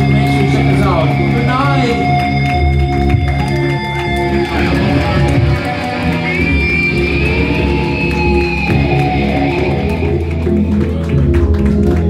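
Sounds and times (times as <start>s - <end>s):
rock band playing: 0.0s - 12.0s.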